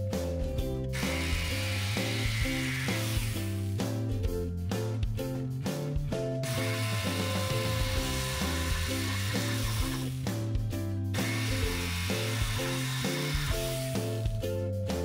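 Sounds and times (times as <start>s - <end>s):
background music: 0.0s - 15.0s
jigsaw cutting wood: 1.0s - 3.8s, 6.4s - 10.2s, 11.2s - 14.3s.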